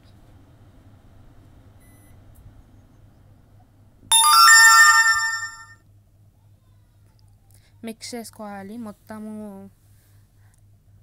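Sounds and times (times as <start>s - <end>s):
electronic chime: 4.1s - 5.7s.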